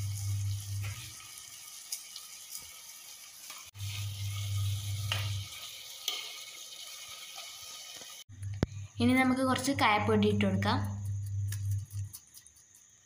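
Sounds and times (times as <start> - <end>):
light sizzling: 0.0 - 13.0
low steady hum: 8.3 - 12.2
spoon stirring in a clay pot: 10.8 - 12.9.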